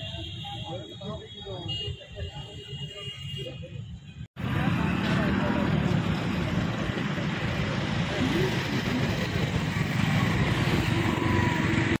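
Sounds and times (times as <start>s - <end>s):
road traffic rumble: 0.0s - 12.0s.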